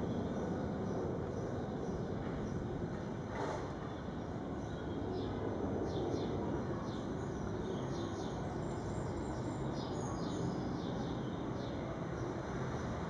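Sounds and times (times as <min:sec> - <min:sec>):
low outdoor background rumble: 0:00.0 - 0:13.0.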